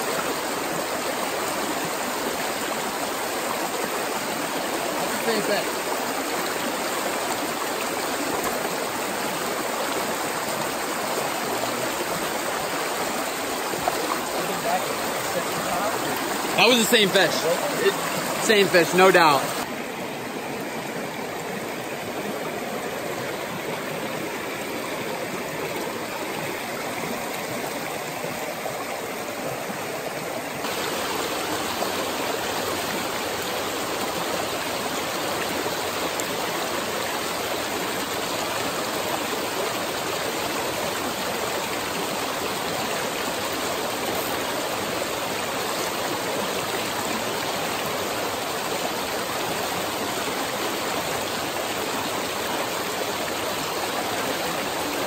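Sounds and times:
stream rushing over stones: 0:00.0 - 0:55.0.

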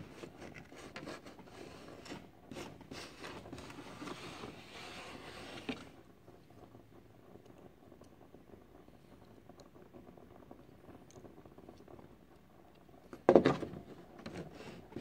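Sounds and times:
wooden plank scraping on hull: 0:03.7 - 0:05.9.

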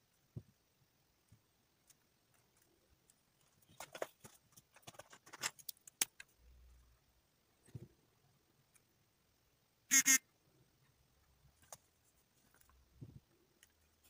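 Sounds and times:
plastic markers clicking and clattering: 0:03.4 - 0:06.3.

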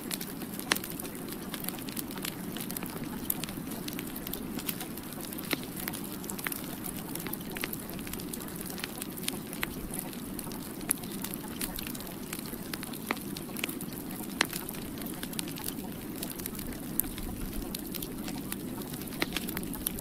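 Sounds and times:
crackles and pops: 0:00.0 - 0:20.0.

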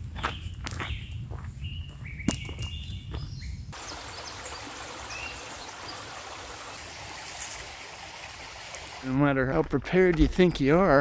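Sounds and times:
bird chirp: 0:00.1 - 0:06.0
creek rushing over rocks: 0:03.8 - 0:09.2.

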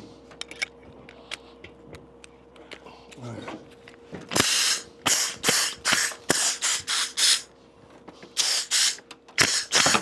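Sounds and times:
pneumatic air hammer bursts: 0:04.4 - 0:07.5, 0:08.4 - 0:10.0.

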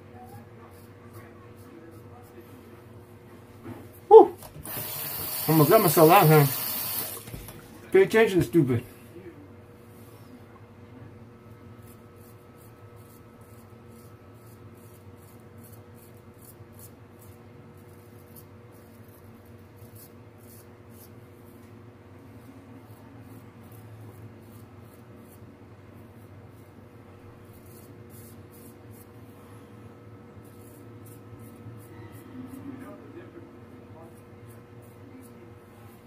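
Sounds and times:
steady low hum: 0:00.0 - 0:36.0
razor scraping stubble: 0:00.2 - 0:02.6, 0:04.6 - 0:07.2, 0:11.8 - 0:21.7, 0:26.2 - 0:29.2, 0:30.2 - 0:33.0.

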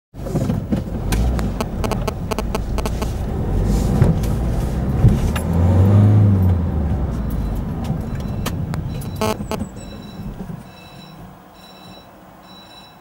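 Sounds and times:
car engine and road noise: 0:00.2 - 0:12.5
sharp clicks and rattles: 0:00.3 - 0:03.3, 0:07.3 - 0:09.7
low hum: 0:00.9 - 0:05.0, 0:06.5 - 0:10.1.

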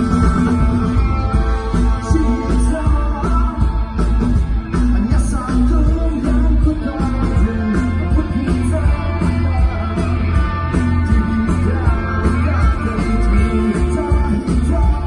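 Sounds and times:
live rock band playing: 0:00.0 - 0:15.0
person singing: 0:01.8 - 0:03.9, 0:04.9 - 0:15.0.

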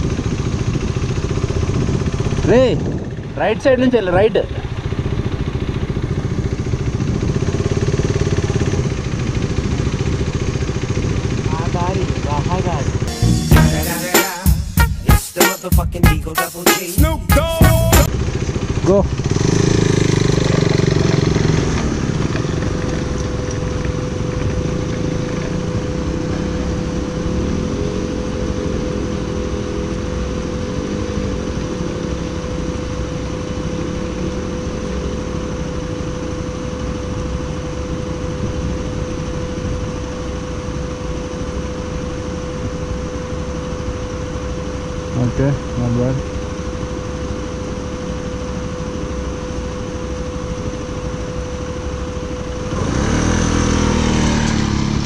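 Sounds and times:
motorcycle engine revving: 0:00.0 - 0:13.1, 0:18.0 - 0:36.2, 0:52.4 - 0:55.0.

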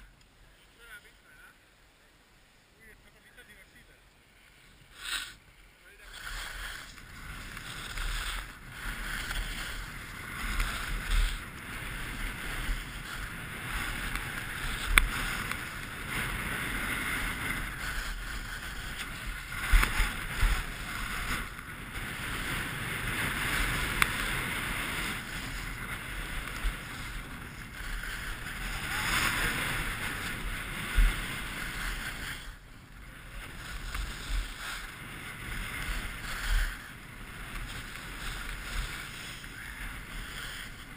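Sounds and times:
skis scraping over snow: 0:02.8 - 0:40.9.

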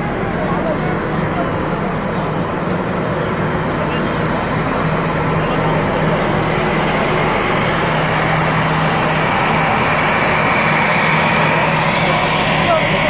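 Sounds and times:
jet engines rushing: 0:00.0 - 0:13.0.

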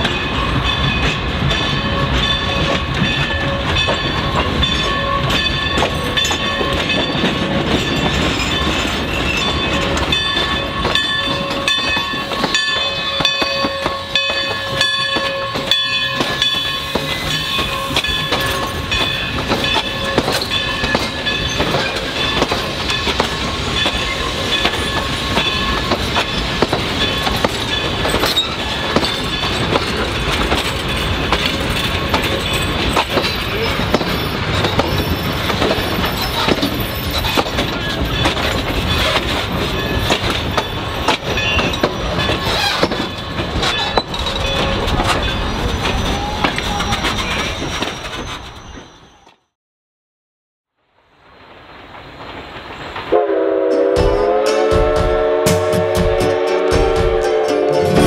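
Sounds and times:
train wheels clicking over rail joints: 0:00.0 - 0:49.0
metallic wheel squeal: 0:24.0 - 0:30.0, 0:30.9 - 0:49.5.

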